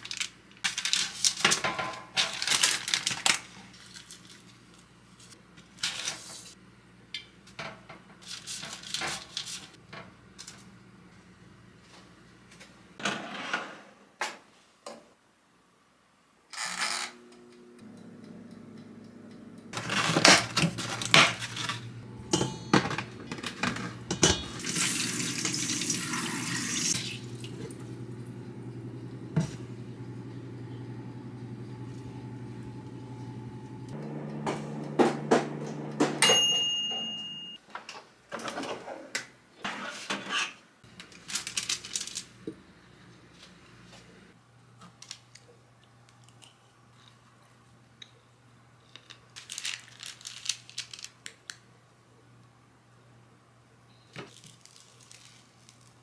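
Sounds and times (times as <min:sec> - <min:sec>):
dishes and utensils clattering: 0:19.9 - 0:24.6, 0:35.4 - 0:37.5
tap running: 0:31.8 - 0:36.2
ringing clink: 0:36.2 - 0:37.6.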